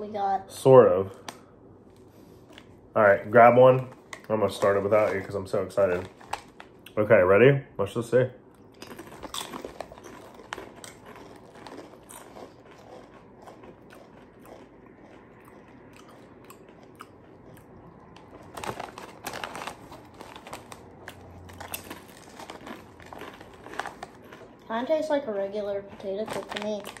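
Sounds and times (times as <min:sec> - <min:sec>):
potato chips crunching: 0:02.5 - 0:07.0, 0:08.5 - 0:27.0
foil bag crinkling: 0:03.4 - 0:06.8, 0:08.8 - 0:14.2, 0:18.2 - 0:24.6, 0:25.2 - 0:27.0.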